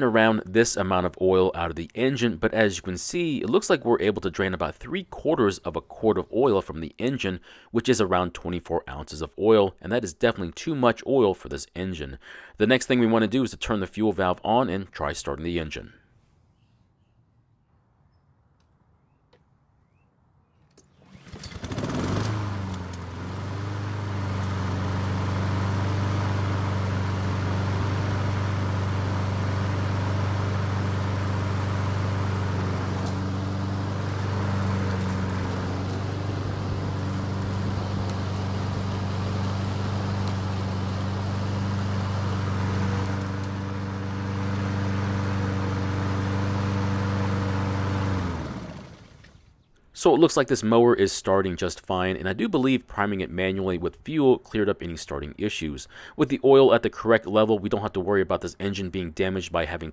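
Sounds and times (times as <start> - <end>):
lawn mower engine running: 20.9 - 49.5.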